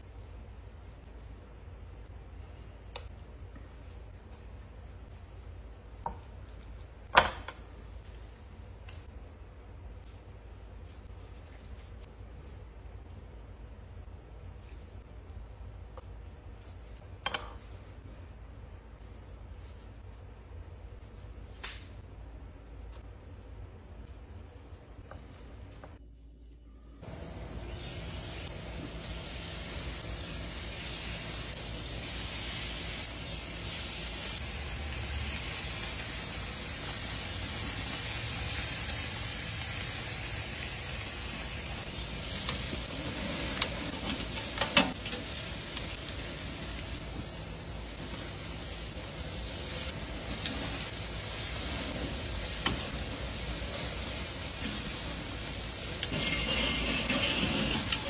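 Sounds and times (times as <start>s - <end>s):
sausages sizzling on a grill: 27.6s - 58.0s.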